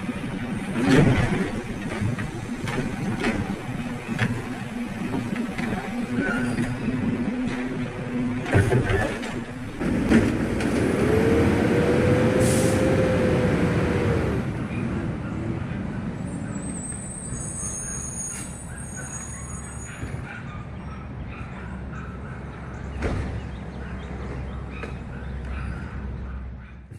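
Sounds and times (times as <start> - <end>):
diesel engine revving: 9.7 - 14.6
air brake hiss: 12.4 - 12.9.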